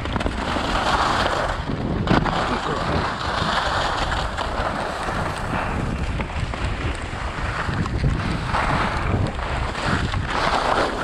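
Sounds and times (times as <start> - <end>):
skis scraping on packed snow: 0.0 - 11.0
wind buffeting microphone: 0.0 - 11.0.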